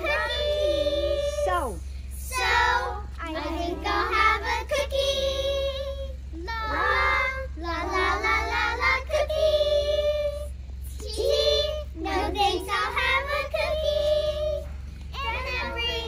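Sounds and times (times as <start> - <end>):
girls singing together: 0.0 - 16.0.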